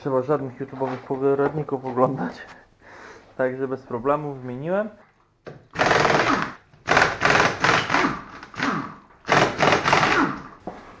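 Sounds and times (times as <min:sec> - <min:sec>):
impact wrench hammering: 0:05.7 - 0:10.6.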